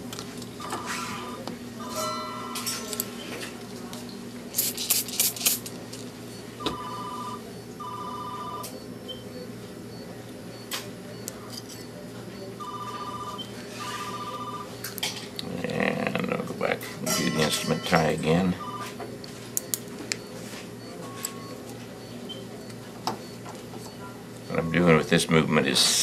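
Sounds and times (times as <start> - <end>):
telephone ringing: 0.6 - 2.7, 6.6 - 8.8, 12.6 - 14.8, 17.2 - 19.0.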